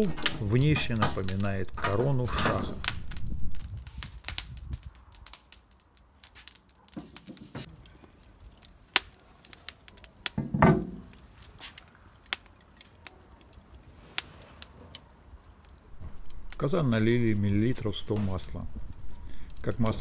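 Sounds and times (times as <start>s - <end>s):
fire crackling and popping: 0.0s - 20.0s
cast-iron lid knock: 10.4s - 11.0s.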